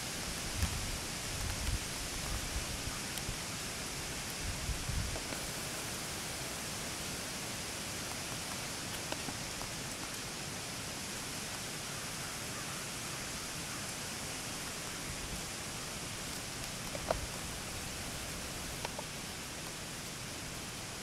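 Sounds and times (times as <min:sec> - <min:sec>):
outdoor hiss: 0:00.0 - 0:21.0
faint crackles: 0:00.1 - 0:06.6, 0:08.0 - 0:10.4, 0:14.5 - 0:20.6.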